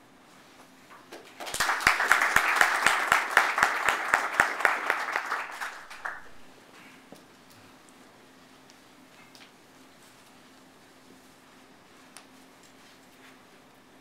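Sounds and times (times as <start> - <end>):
close hand claps: 1.0 - 6.5
audience applauding: 1.2 - 6.6.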